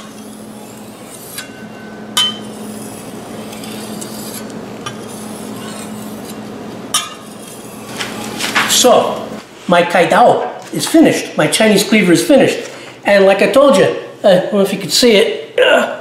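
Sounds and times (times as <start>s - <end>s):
knife scraping on whetstone: 0.0s - 8.4s.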